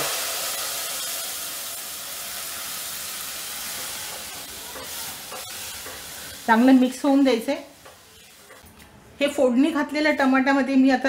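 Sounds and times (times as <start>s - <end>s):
liquid sizzling in hot oil: 0.0s - 8.8s.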